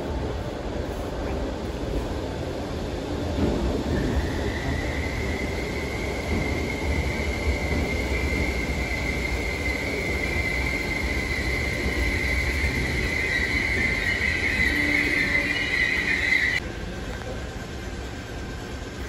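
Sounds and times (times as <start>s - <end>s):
train rumbling: 0.0s - 19.0s
high-pitched squeal: 4.0s - 16.6s.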